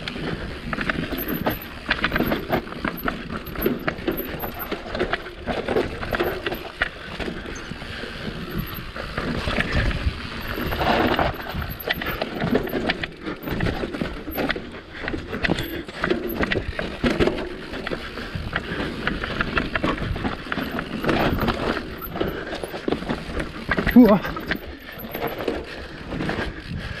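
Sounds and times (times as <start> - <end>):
tyre noise on dirt: 0.0 - 26.7
bike clattering over ground: 0.6 - 26.4.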